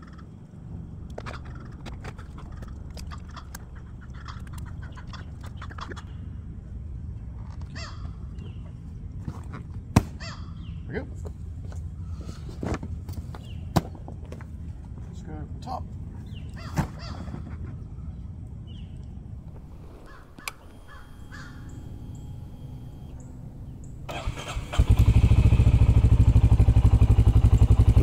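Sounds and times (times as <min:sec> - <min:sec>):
birds calling: 0:00.0 - 0:06.5, 0:07.6 - 0:09.0, 0:10.0 - 0:11.3, 0:13.2 - 0:14.1, 0:16.1 - 0:26.0
steady low rumble: 0:00.0 - 0:28.0.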